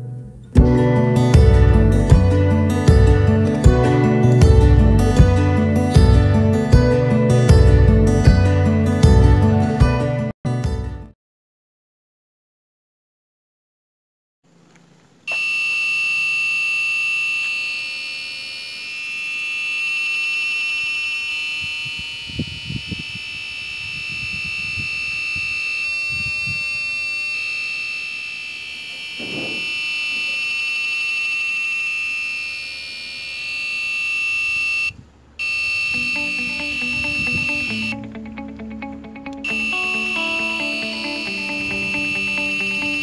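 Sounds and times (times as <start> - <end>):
high-pitched buzzer: 15.3 - 38.0, 39.4 - 43.0.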